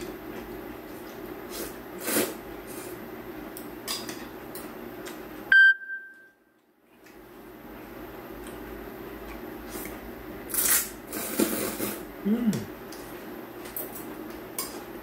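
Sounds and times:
steady background hum: 0.0s - 15.0s
noodles being slurped: 1.5s - 3.0s, 9.6s - 12.1s
sharp electronic beep: 5.5s - 6.3s.

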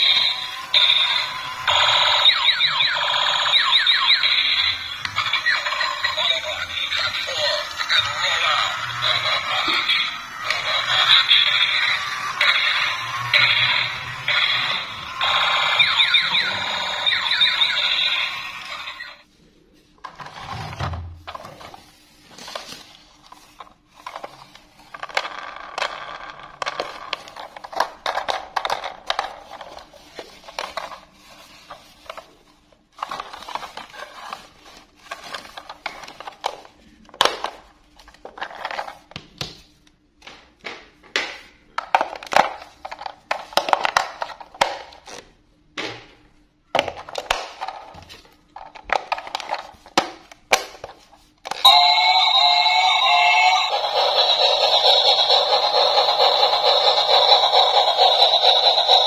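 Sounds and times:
toy train electronic tune: 0.0s - 19.2s, 51.6s - 59.0s.

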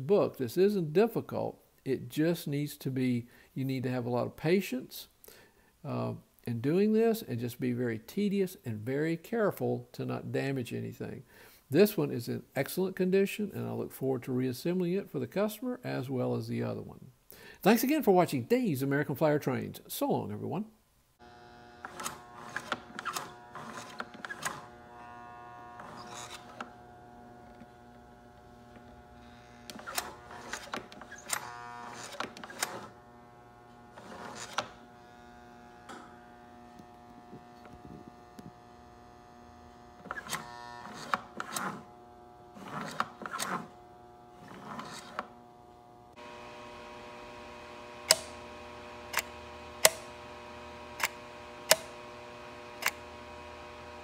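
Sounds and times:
electrical hum: 21.2s - 54.0s
sharp clicks: 48.1s - 48.4s, 49.1s - 50.1s, 51.0s - 52.0s, 52.8s - 53.0s
clattering clicks of model train: 51.0s - 52.0s.

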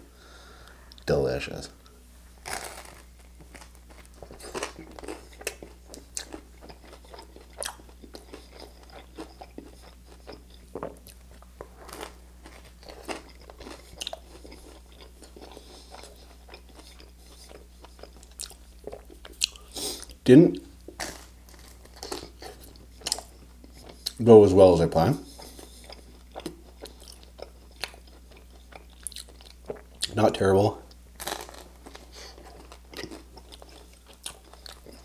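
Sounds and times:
biting into crisp toast: 2.4s - 10.9s
crunchy chewing: 2.4s - 20.2s, 20.8s - 24.2s, 25.2s - 30.2s, 30.9s - 35.0s.

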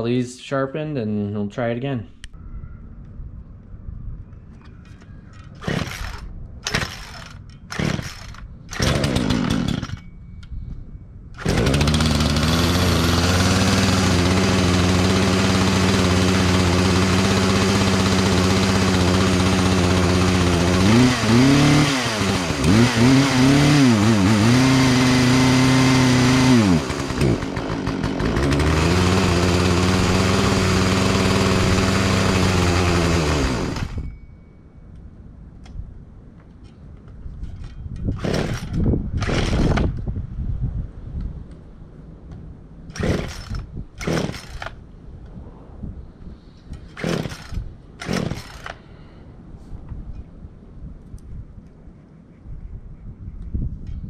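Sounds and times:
chainsaw running: 5.5s - 10.1s, 11.4s - 34.1s, 38.2s - 39.9s, 42.9s - 44.8s, 46.8s - 48.8s.

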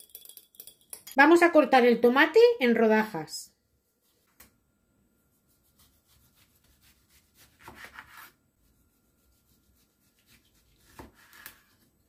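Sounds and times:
knife sawing through tomato: 5.6s - 8.3s.

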